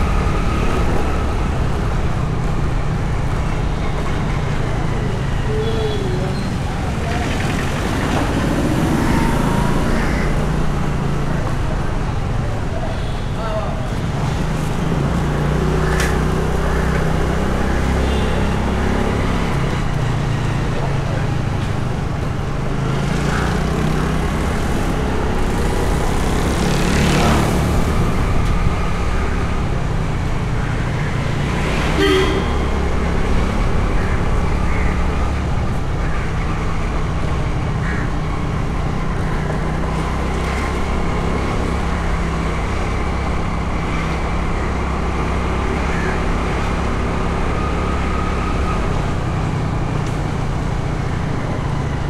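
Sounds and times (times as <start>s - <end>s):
street traffic noise: 0.0s - 52.0s
short car horn toot: 32.0s - 32.7s.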